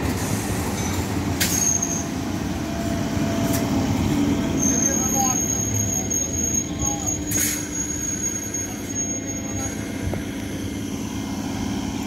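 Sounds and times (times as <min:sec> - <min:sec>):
train rolling past humming: 0:00.0 - 0:12.0
high-pitched squeal: 0:04.3 - 0:10.0.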